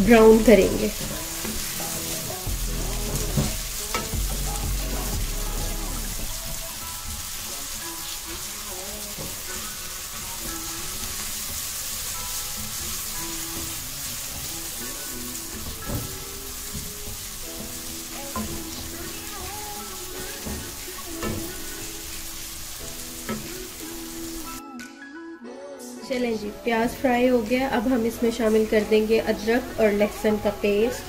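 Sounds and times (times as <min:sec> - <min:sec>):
onions sizzling in oil: 0:00.0 - 0:24.6, 0:26.6 - 0:31.0
spatula knocking on pan: 0:00.3 - 0:07.5, 0:15.5 - 0:22.1.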